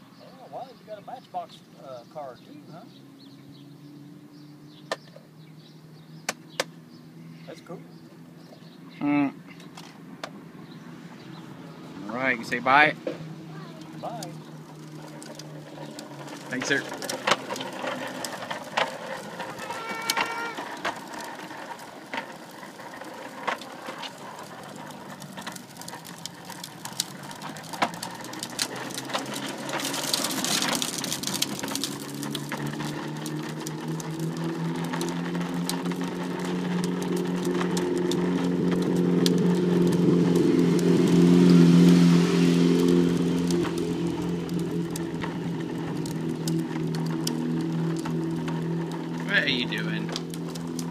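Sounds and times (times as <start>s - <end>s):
street traffic: 0.0s - 50.9s
vehicle engine hum: 0.0s - 50.9s
toy trike wheels clattering on concrete: 12.0s - 50.9s.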